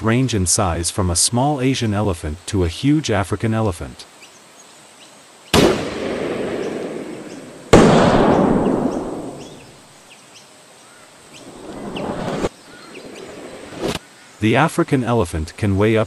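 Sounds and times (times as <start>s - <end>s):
rifle shots: 5.5s - 9.7s
rolling echo: 5.6s - 9.8s
rush of noise: 11.3s - 14.1s.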